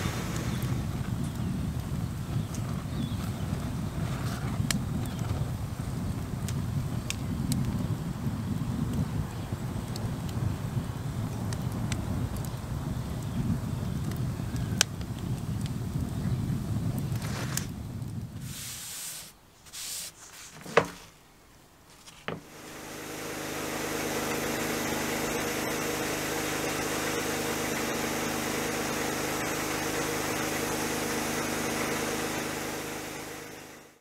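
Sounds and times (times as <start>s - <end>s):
sandblasting hiss: 0.0s - 0.9s, 18.4s - 20.5s
wind on microphone: 0.0s - 19.3s
flames burning in fire pit: 0.0s - 34.0s.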